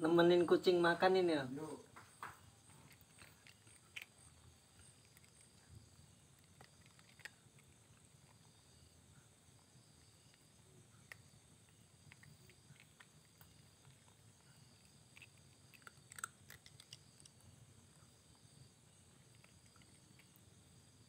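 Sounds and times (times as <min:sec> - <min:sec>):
cat crunching dry kibble: 0:02.6 - 0:08.7, 0:09.7 - 0:20.6.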